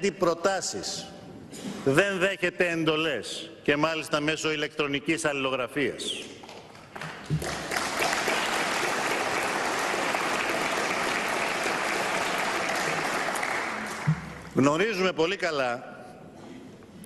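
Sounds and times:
crowd applauding: 6.9s - 14.6s.

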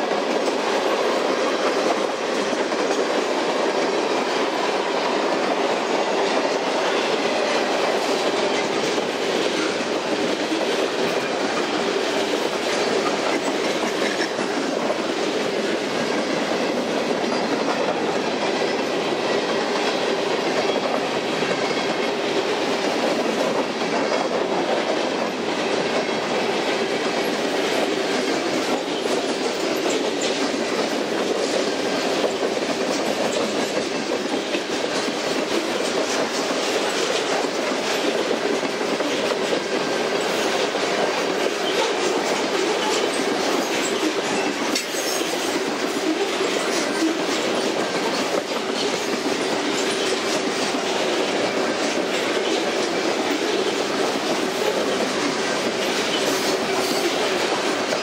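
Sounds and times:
clickety-clack over rail joints: 0.0s - 58.0s
train wheels on rails: 0.0s - 58.0s.

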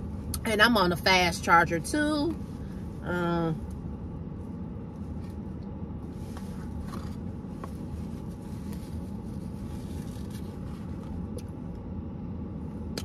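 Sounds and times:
low rumble inside car: 0.0s - 13.0s
paper box and napkin rustling: 6.2s - 11.2s.

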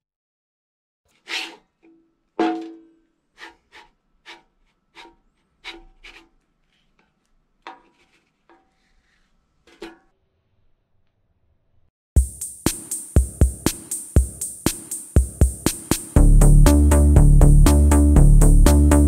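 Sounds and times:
spatula scraping metal griddle: 1.1s - 2.8s, 3.4s - 10.1s.

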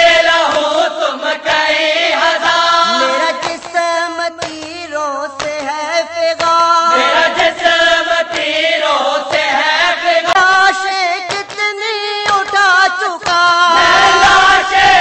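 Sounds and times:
person chanting an elegy: 2.8s - 3.9s, 6.9s - 7.8s.

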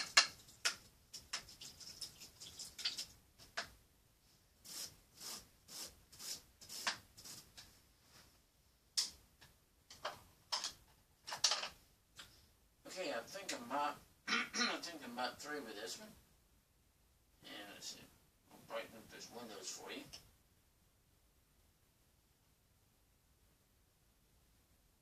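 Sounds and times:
paintbrush swishing on canvas: 4.6s - 8.4s.

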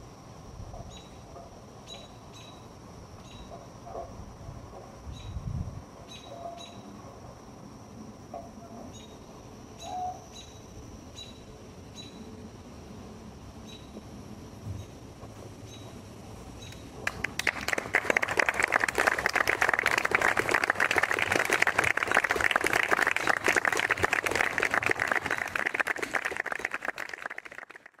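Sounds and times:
audience applauding: 17.0s - 28.0s.

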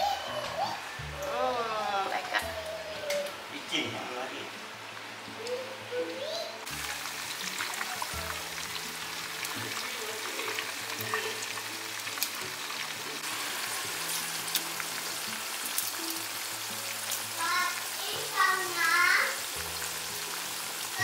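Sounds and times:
background music with low held notes: 0.0s - 21.0s
fritters sizzling in oil: 5.0s - 21.0s.

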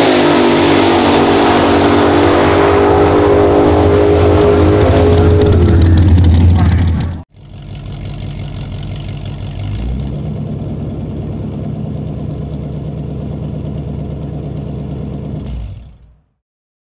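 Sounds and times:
engine idling: 4.1s - 16.4s.

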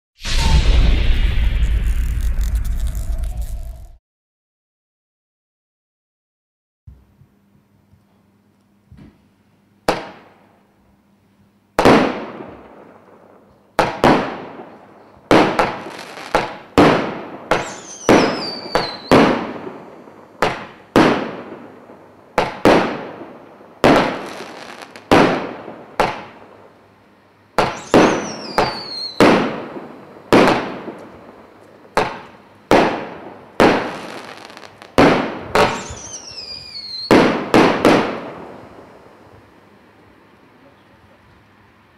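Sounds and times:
falling firework whistle: 0.2s - 4.0s, 17.5s - 21.7s, 23.8s - 25.3s, 27.6s - 30.6s, 33.6s - 34.8s, 35.6s - 38.6s
firework bangs: 0.2s - 4.0s, 11.8s - 12.9s, 13.8s - 26.7s, 27.6s - 39.5s
faint firework pops: 15.3s - 19.5s, 26.0s - 26.4s, 27.6s - 33.0s, 33.6s - 38.3s.

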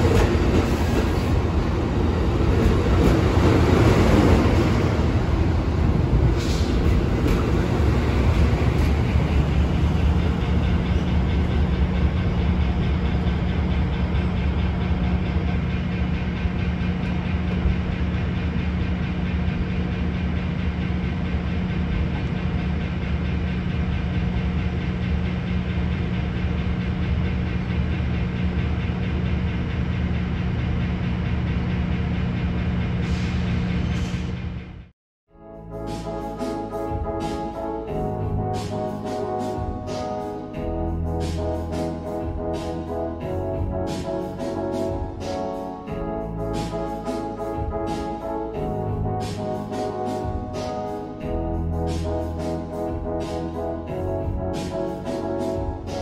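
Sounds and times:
passenger train rumbling past: 0.0s - 34.9s, 35.5s - 56.0s
diesel engine drone: 35.6s - 56.0s.

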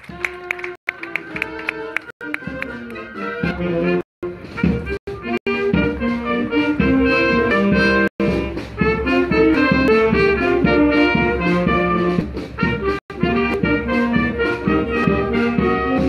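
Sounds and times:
wind band playing: 0.0s - 16.0s.

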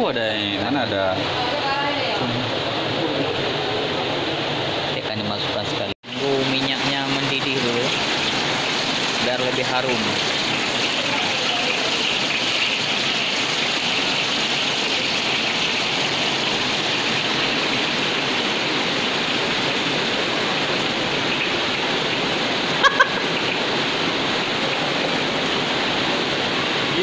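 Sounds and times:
oil sizzling in a wok: 6.1s - 25.0s.

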